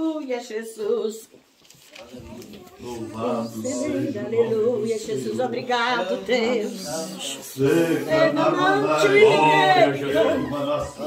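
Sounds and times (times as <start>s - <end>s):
voices singing along: 2.3s - 11.0s.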